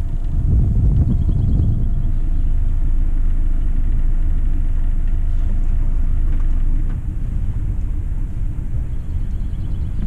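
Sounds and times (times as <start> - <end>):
boat engine low rumble: 0.0 - 10.0.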